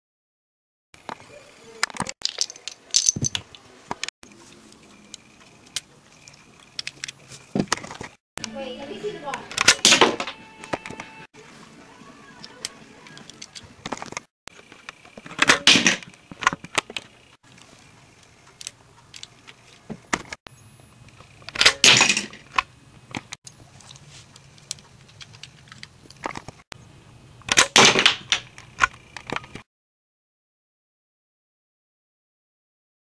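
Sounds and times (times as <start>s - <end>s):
rubber-band crossbow firing: 9.6s - 10.3s, 15.4s - 16.1s, 27.5s - 28.5s.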